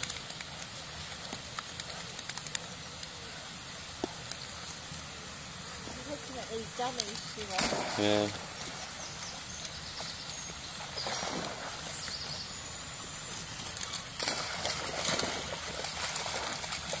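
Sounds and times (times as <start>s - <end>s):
dogs splashing in river: 4.9s - 17.0s.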